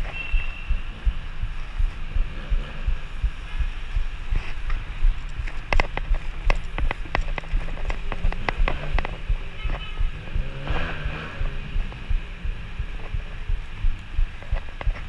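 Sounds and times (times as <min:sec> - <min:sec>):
wind buffeting microphone: 0:00.0 - 0:15.0
bicycle rolling on road: 0:00.1 - 0:09.6
sharp clicks: 0:04.5 - 0:09.8.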